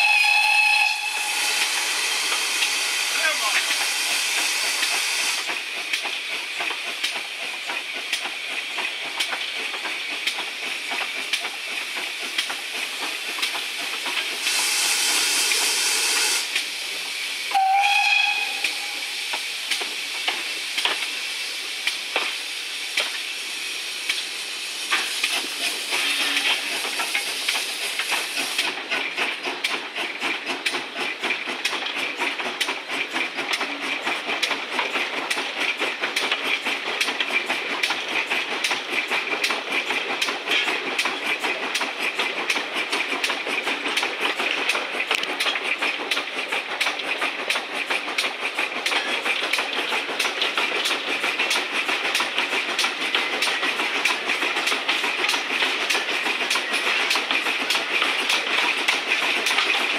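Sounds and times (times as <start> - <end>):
high steam hiss: 0.0 - 29.5
steam locomotive exhaust beat: 0.0 - 59.9
wheels clattering on rails: 2.3 - 14.5, 24.9 - 59.9.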